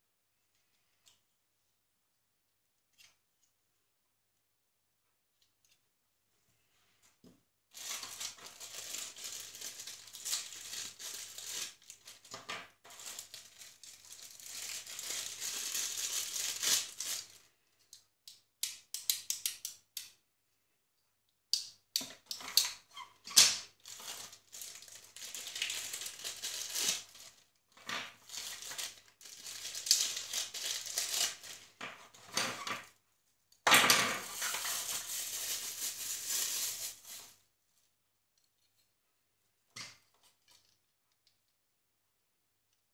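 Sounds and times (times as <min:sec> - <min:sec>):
plastic bags crinkling: 0:07.7 - 0:17.4, 0:23.8 - 0:27.4, 0:28.2 - 0:32.3, 0:34.2 - 0:37.4
small plastic parts clicking: 0:17.9 - 0:20.2.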